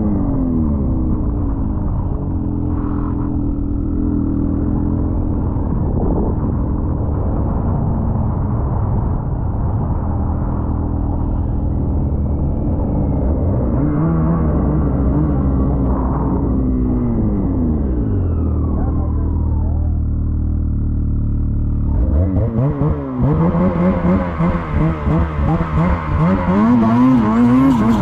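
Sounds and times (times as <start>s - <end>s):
snowmobile engine running: 20.7s - 28.0s.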